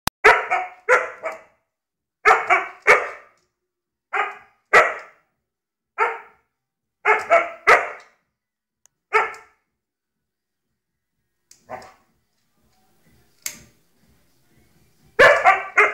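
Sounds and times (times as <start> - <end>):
dog barking sharply: 0.2 - 1.5, 2.2 - 3.4, 4.1 - 5.2, 6.0 - 6.4, 7.0 - 8.1, 9.1 - 9.6, 11.6 - 12.0, 15.2 - 15.9.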